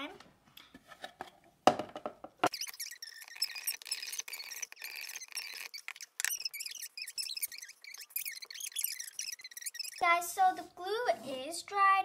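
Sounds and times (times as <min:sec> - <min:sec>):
plastic sprayer squeaking: 0:02.5 - 0:10.6.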